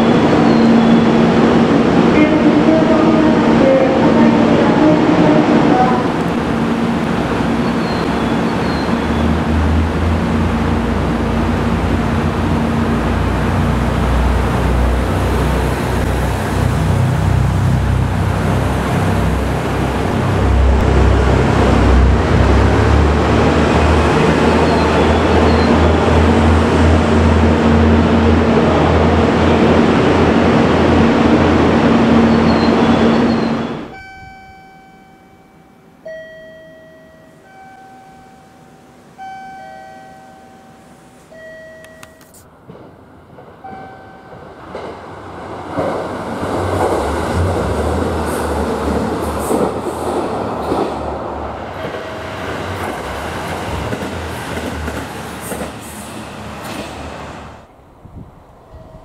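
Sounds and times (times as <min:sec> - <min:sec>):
diesel railcar engine and wheels rumbling: 0:00.0 - 0:59.0
electronic chime tune: 0:33.4 - 0:42.4.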